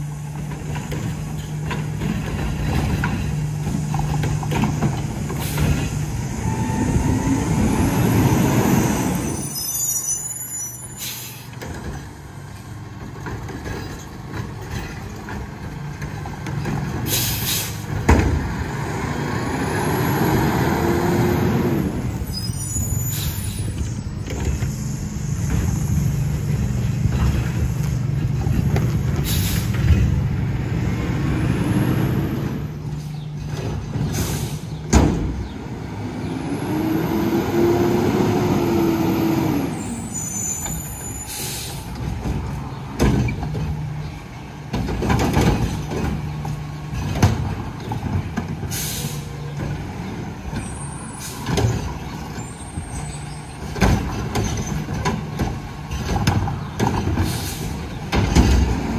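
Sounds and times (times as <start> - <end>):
air brake hisses: 10.8 - 11.6, 17.1 - 17.9, 22.6 - 23.8, 29.2 - 29.8, 34.1 - 34.7, 41.2 - 41.9, 48.7 - 49.3.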